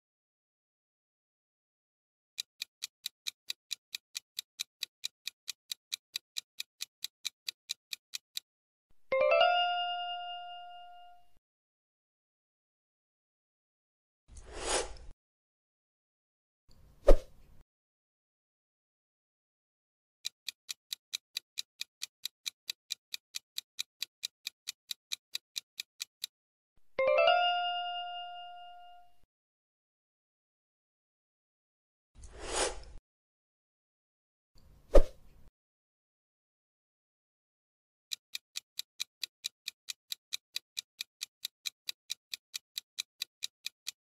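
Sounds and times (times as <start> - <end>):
clock ticking: 2.4 - 8.5, 20.2 - 26.3, 38.1 - 44.0.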